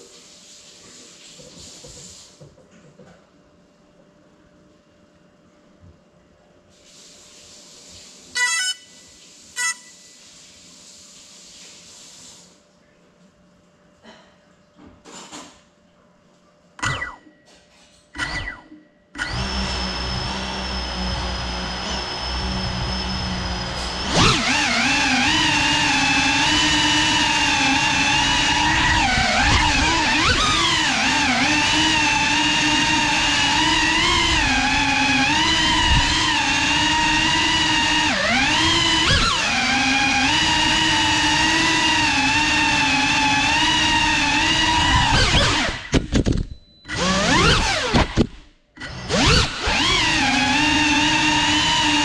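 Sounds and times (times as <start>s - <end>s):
drone propellers whining: 16.8s - 17.2s, 19.2s - 40.0s, 44.7s - 45.9s, 46.9s - 50.4s
short beeps: 46.5s - 46.9s.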